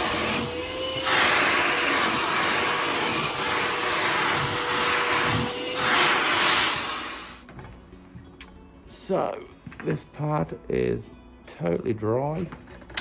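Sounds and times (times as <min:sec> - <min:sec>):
shop vac sucking on carpet: 0:00.0 - 0:07.4.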